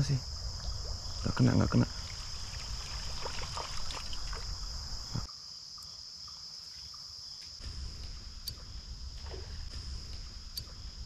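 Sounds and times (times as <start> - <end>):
insects chirring: 0.0 - 11.0
creek water: 0.3 - 5.3, 9.1 - 10.0
low rumble: 7.6 - 11.0.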